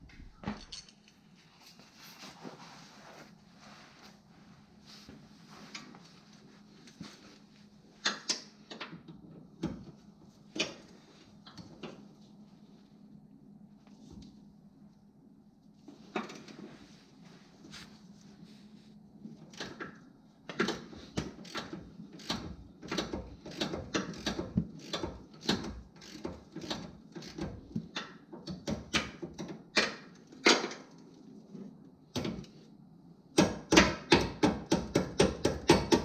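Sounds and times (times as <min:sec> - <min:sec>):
ratchet wrench clicking: 0:21.4 - 0:27.4.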